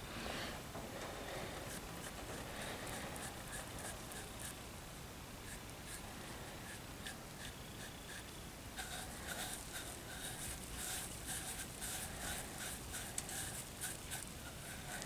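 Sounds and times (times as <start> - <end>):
scrub pad rubbing clay: 5.5 - 15.0.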